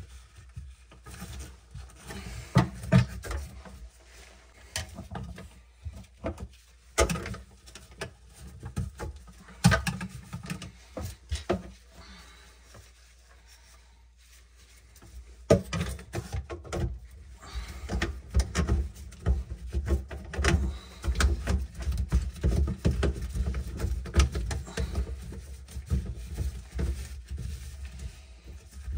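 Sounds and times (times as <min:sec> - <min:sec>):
plastic drain parts knocking: 0:04.7 - 0:11.7, 0:15.5 - 0:27.1.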